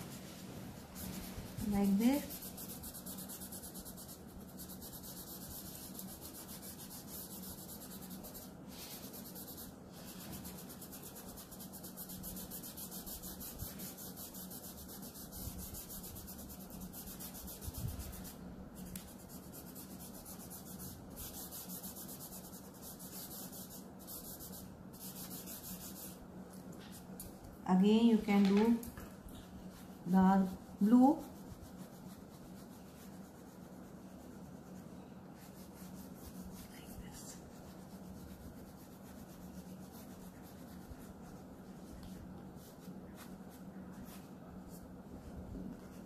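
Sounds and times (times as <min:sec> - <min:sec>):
cotton rubbing on paper: 0:00.0 - 0:26.2, 0:29.4 - 0:46.0.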